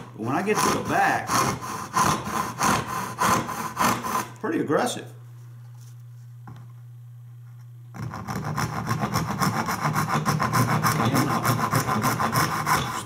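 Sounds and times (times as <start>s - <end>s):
hand saw cutting wood: 0.0s - 4.4s, 8.0s - 13.0s
low steady hum: 0.0s - 13.0s.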